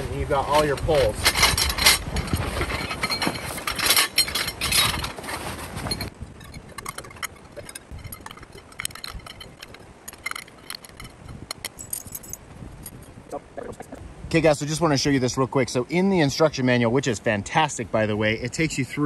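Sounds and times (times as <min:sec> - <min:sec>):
metal tent poles clinking: 0:00.4 - 0:13.2.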